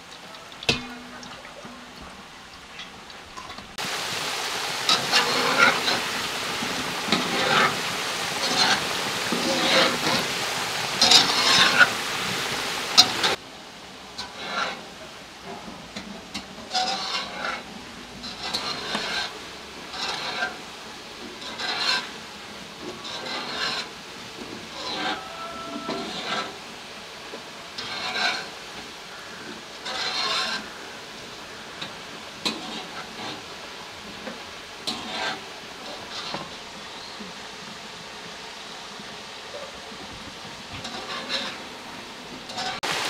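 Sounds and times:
spoon stirring in metal pot: 0.0s - 3.8s.

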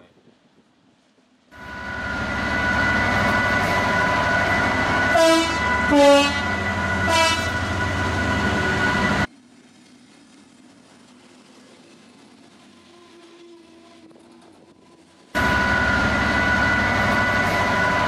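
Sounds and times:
diesel locomotive engine whine: 1.4s - 18.0s
train horn blasts: 4.9s - 8.7s.

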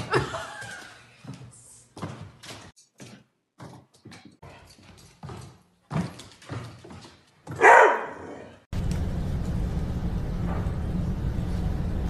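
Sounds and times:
dog barking: 7.5s - 8.6s
low hum: 8.8s - 12.0s.

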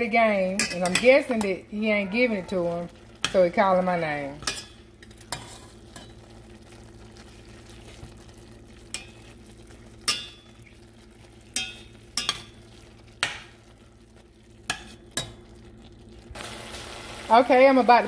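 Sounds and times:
meat sizzling in a pan: 2.6s - 18.0s
spatula scraping a pan: 4.6s - 6.2s.

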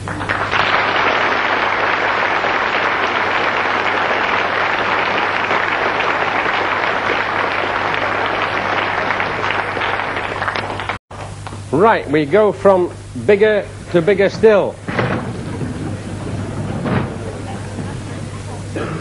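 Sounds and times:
audience applauding: 0.0s - 11.0s, 15.3s - 19.0s.

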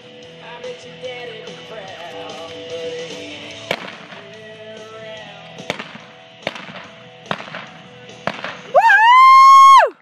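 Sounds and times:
background music: 0.0s - 10.0s
rifle shots: 3.7s - 4.4s, 5.6s - 8.7s.

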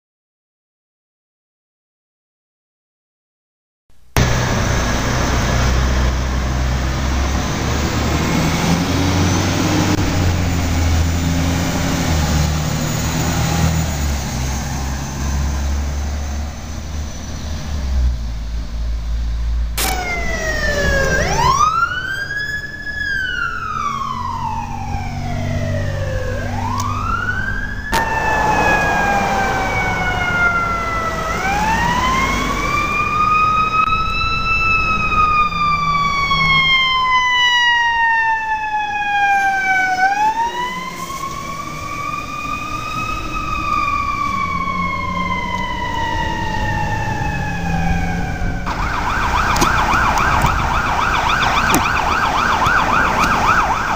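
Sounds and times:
fire engine siren wailing: 4.2s - 53.9s
fast pulsing siren: 19.8s - 53.9s
low engine rumble: 23.8s - 34.2s.

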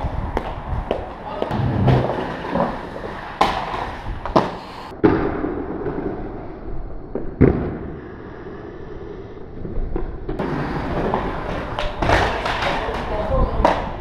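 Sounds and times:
skate wheels rolling on stone: 0.0s - 5.0s, 9.5s - 14.0s
skates clacking on stone: 0.3s - 4.9s, 10.4s - 14.0s.

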